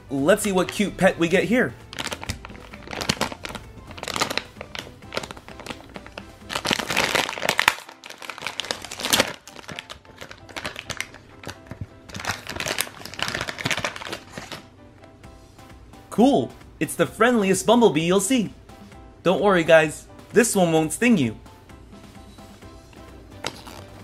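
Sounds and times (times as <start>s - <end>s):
background music: 0.0s - 24.0s
plastic packet crinkling: 1.9s - 14.7s, 23.4s - 24.0s.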